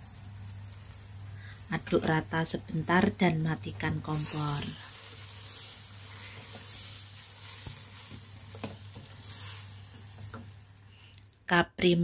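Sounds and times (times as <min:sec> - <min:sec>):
food sizzling in a wok: 0:00.0 - 0:11.2
spatula stirring and knocking pan: 0:04.1 - 0:10.8.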